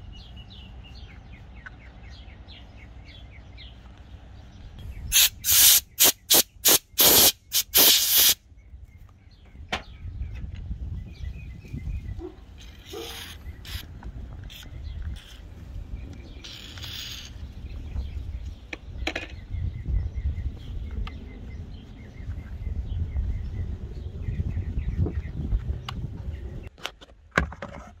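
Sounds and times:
faint birds chirping: 0.0s - 26.7s
aerosol spray hissing bursts: 5.1s - 8.4s, 13.0s - 13.8s.

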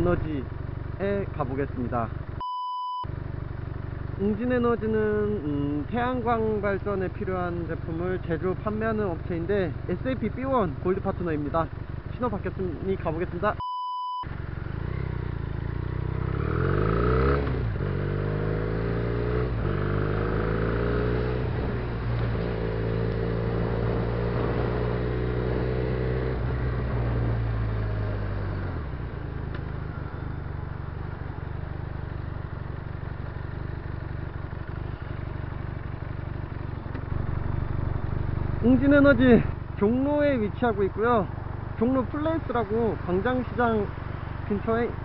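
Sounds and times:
wind and road noise: 0.0s - 45.0s
motorcycle engine accelerating: 14.3s - 43.3s.

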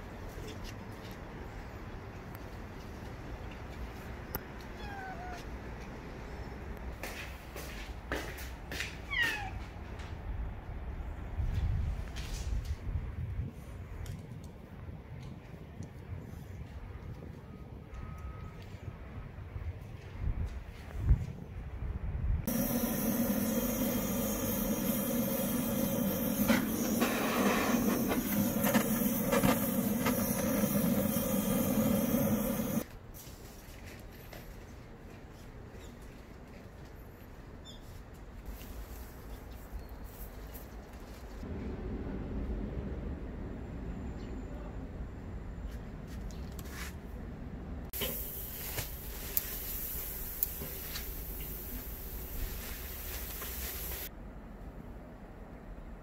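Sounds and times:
torch flame hissing: 22.5s - 32.9s, 48.0s - 54.1s.

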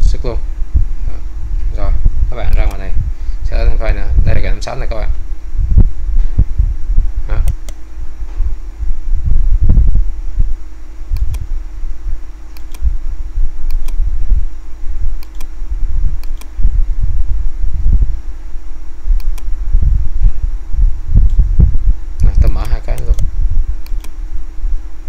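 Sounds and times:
steady hum: 0.0s - 25.0s
uneven low rumble: 0.0s - 25.0s
computer mouse clicking: 11.2s - 11.5s, 12.5s - 12.9s, 13.6s - 14.0s, 15.2s - 15.5s, 16.2s - 16.6s, 19.2s - 19.5s, 22.2s - 24.2s.

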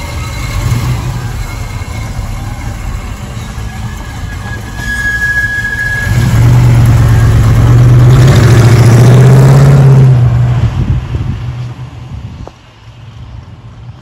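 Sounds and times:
car engine accelerating: 6.0s - 11.3s.

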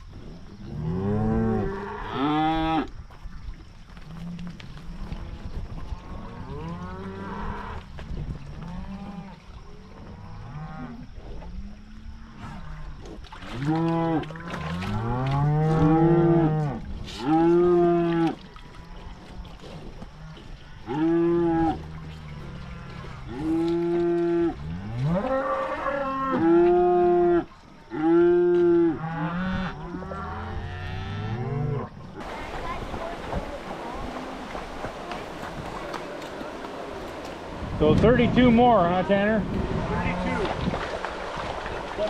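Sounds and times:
cows and calves mooing: 0.5s - 3.0s, 4.0s - 32.4s.

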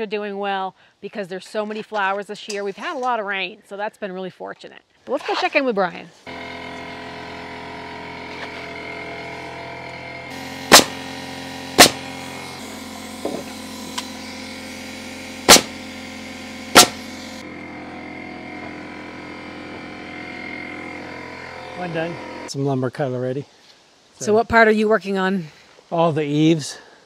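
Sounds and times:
steady hum: 6.3s - 22.5s
nail gun firing: 10.3s - 17.4s.

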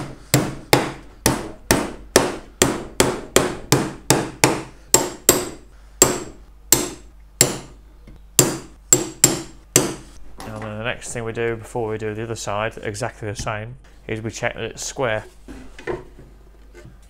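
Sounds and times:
hammer driving nails into wood: 0.0s - 7.7s, 8.4s - 10.0s.

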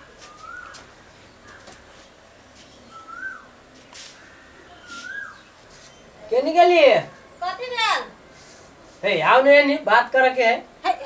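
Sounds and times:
bird calling: 0.0s - 6.4s.

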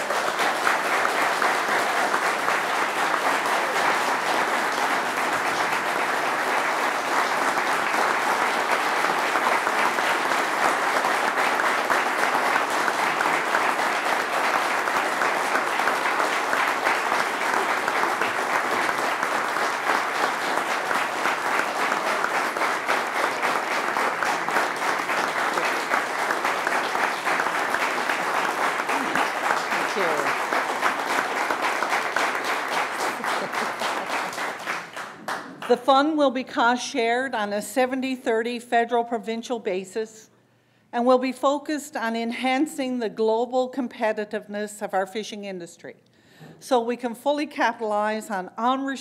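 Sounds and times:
crowd applauding: 0.0s - 35.7s.

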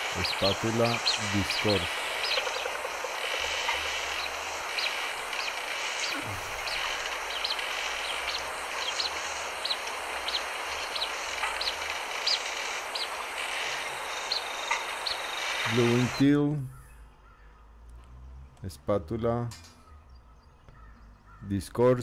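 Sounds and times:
duck peeping whistles: 0.0s - 16.2s
outdoor hiss: 0.0s - 16.6s.

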